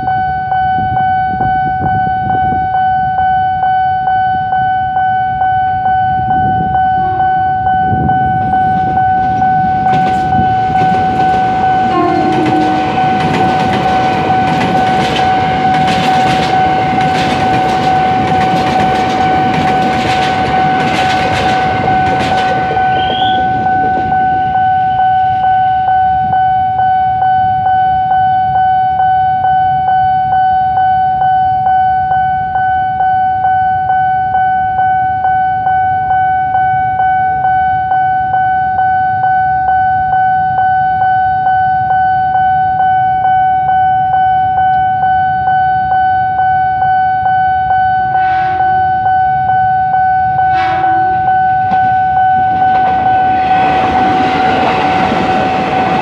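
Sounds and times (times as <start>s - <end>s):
level crossing alarm: 0.0s - 56.0s
train wheels clattering: 8.7s - 24.6s, 50.5s - 56.0s.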